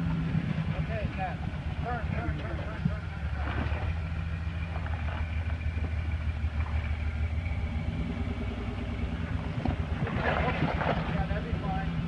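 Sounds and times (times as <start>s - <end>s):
car engine running at low revs: 0.0s - 12.0s.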